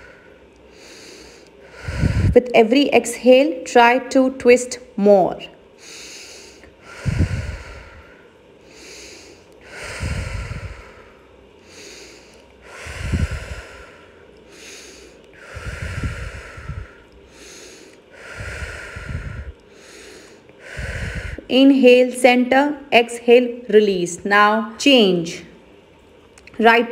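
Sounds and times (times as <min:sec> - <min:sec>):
woman breathing deeply: 0:00.0 - 0:02.4, 0:05.8 - 0:21.5
air rumble on microphone: 0:01.0 - 0:02.6, 0:06.0 - 0:21.7.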